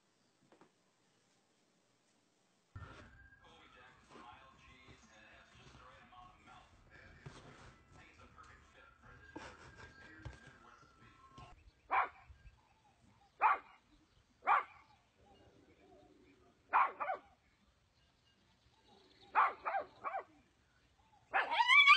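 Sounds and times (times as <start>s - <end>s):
dog barking: 11.9s - 12.3s, 13.4s - 14.9s, 16.7s - 17.4s, 19.3s - 20.4s, 21.3s - 21.9s.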